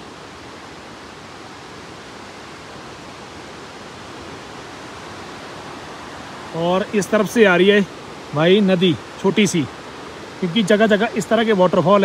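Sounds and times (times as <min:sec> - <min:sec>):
river and waterfalls rushing: 0:00.0 - 0:12.0.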